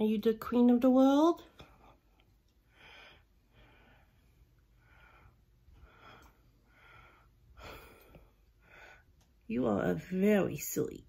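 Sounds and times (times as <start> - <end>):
faint breathing: 1.7 - 9.3.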